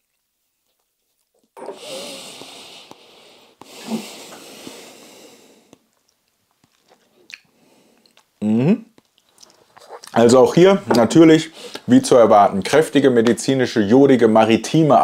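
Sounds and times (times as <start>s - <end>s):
long airy breaths: 1.6s - 5.8s.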